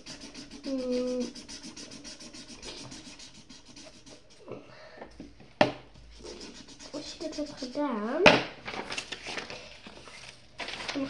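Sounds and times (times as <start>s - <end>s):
pencil scribbling on paper: 0.0s - 4.6s, 6.0s - 8.0s.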